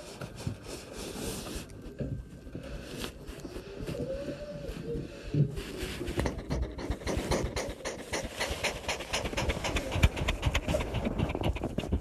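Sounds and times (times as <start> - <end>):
cat panting: 5.6 - 12.0.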